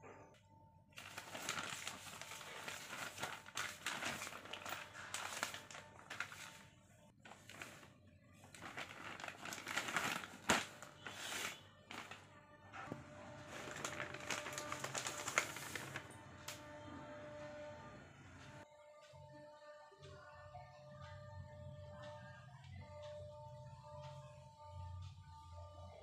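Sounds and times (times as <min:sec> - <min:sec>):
plastic bag crinkling and rustling: 0:01.0 - 0:16.2.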